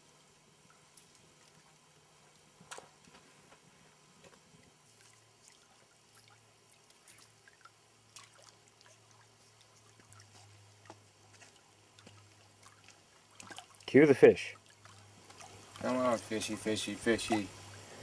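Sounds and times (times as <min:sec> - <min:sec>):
faint low hum: 0:00.0 - 0:18.0
lake water lapping on rocks: 0:04.9 - 0:14.0, 0:14.6 - 0:17.8.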